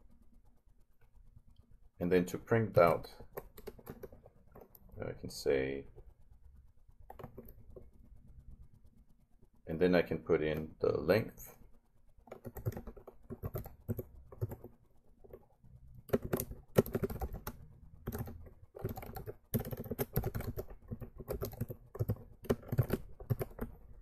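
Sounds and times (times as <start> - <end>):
computer keyboard typing: 2.7 - 6.1, 7.0 - 7.9, 12.2 - 24.0.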